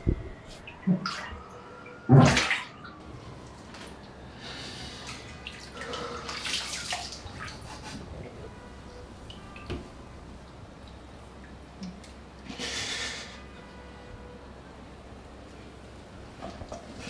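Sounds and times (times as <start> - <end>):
water splashing at a sink: 0.7 - 2.9, 4.9 - 8.5, 16.4 - 17.0.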